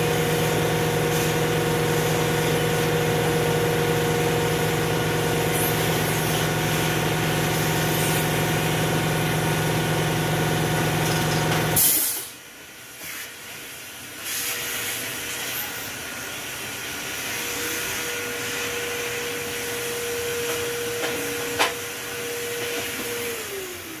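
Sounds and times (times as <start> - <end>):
vacuum cleaner humming: 0.0 - 12.0, 15.9 - 24.0.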